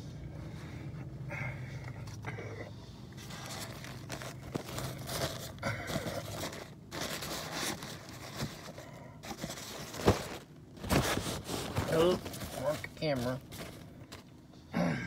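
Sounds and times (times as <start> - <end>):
paper napkin crumpling: 3.2 - 14.3.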